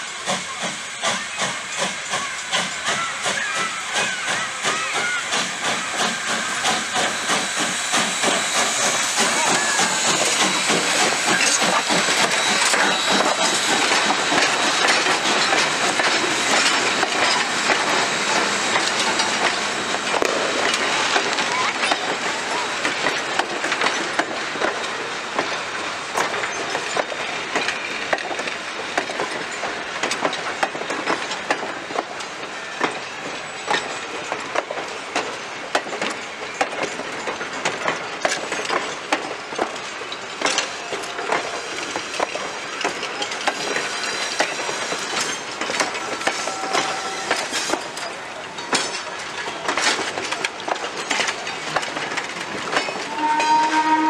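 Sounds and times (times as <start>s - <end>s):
train wheels clacking over rail joints: 0.0s - 54.0s.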